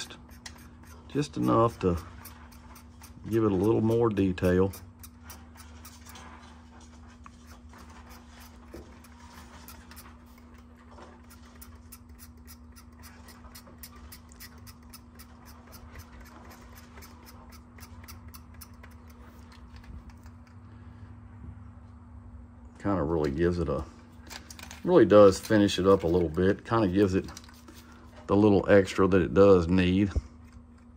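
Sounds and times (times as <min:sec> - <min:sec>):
knife blade scratching paint: 0:00.0 - 0:20.6
steady low hum: 0:00.0 - 0:30.9.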